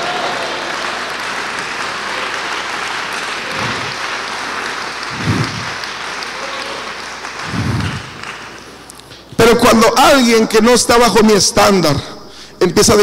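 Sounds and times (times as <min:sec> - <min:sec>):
congregation clapping: 0:00.0 - 0:09.7.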